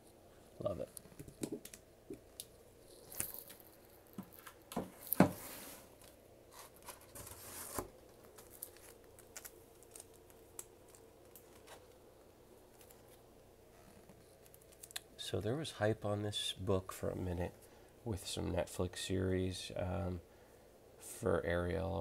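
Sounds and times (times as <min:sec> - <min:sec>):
plastic sleeves crinkling: 0:00.9 - 0:05.3, 0:05.9 - 0:12.0, 0:12.6 - 0:15.1.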